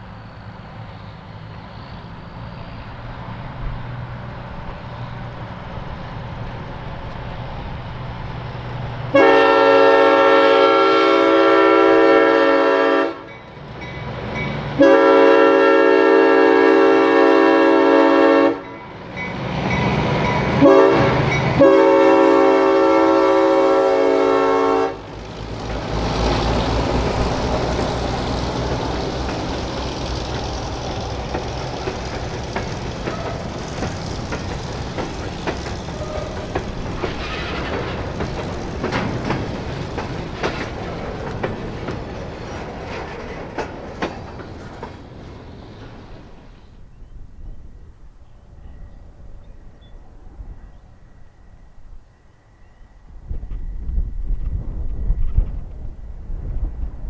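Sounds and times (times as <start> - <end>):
locomotive air horn blasts: 9.1 - 13.3, 14.8 - 18.7, 20.6 - 25.1
train wheels clicking over rail joints: 18.6 - 47.1, 53.3 - 57.0
diesel engine rumbling: 19.0 - 46.5.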